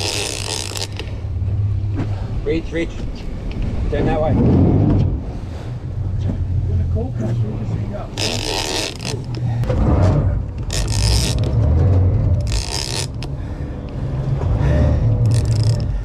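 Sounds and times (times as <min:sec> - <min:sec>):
fishing reel cranking: 0:00.0 - 0:01.2, 0:08.1 - 0:09.5, 0:10.6 - 0:11.6, 0:12.4 - 0:13.4, 0:15.2 - 0:16.0
boat engine rumbling: 0:00.0 - 0:16.0.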